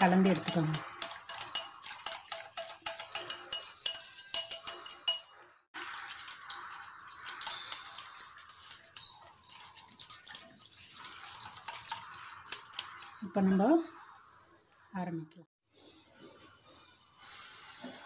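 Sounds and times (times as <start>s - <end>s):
whisk clinking against glass bowl: 0.0s - 5.4s, 7.2s - 10.0s
wet swishing of batter: 5.8s - 14.4s.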